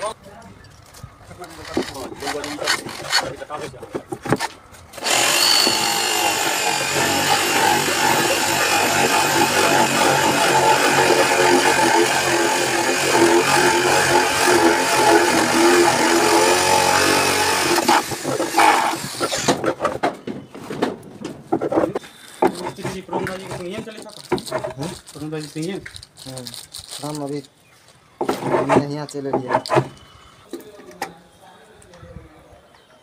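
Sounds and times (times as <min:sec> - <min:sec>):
jigsaw cutting wood: 0:05.0 - 0:19.6.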